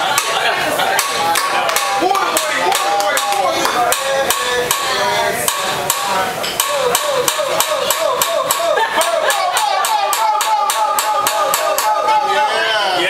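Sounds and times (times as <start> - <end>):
voices: 0.0 - 13.0
spatula clacking on griddle: 0.1 - 12.1.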